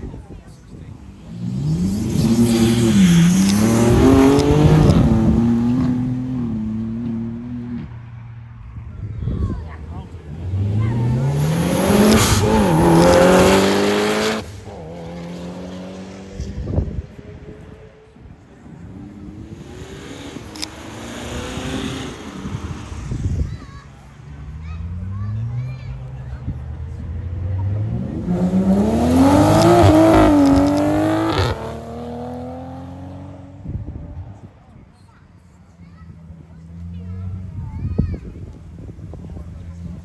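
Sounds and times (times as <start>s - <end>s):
car engine accelerating: 1.0s - 8.5s, 9.7s - 17.2s, 18.6s - 23.5s, 24.3s - 33.8s.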